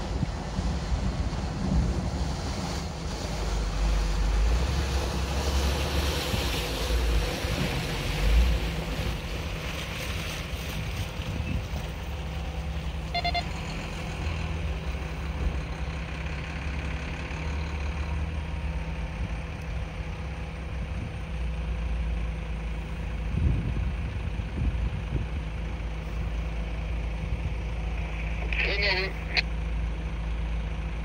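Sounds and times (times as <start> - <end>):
wind gusting on microphone: 0.0 - 12.6, 23.1 - 28.6
heavy vehicle engine idling: 6.8 - 31.0.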